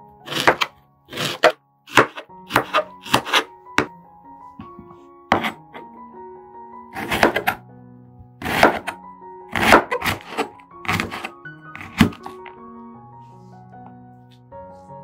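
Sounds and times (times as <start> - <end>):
background music: 0.0 - 15.0
knife chopping onion: 0.3 - 3.9, 5.3 - 5.6, 7.0 - 7.6, 8.4 - 12.4.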